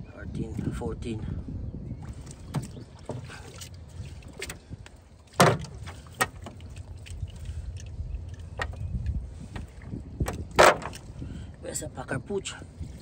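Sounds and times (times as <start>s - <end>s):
water trickling from net: 2.0s - 10.0s
knocks against metal hull: 5.4s - 6.5s, 10.2s - 11.0s.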